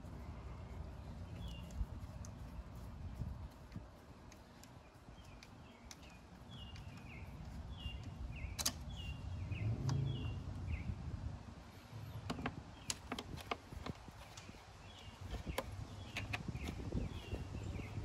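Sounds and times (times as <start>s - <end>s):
small bird chirping: 0.0s - 11.0s, 12.1s - 18.0s
low rumble: 9.1s - 12.2s.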